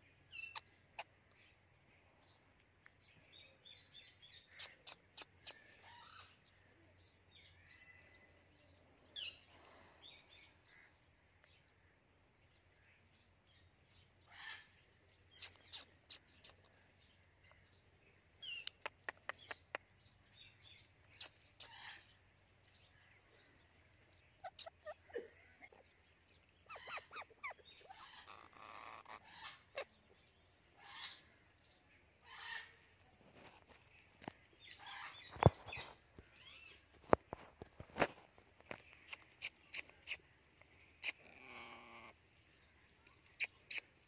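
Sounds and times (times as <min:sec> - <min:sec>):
parakeet chirping and clicking: 0:18.5 - 0:19.9, 0:38.7 - 0:40.2.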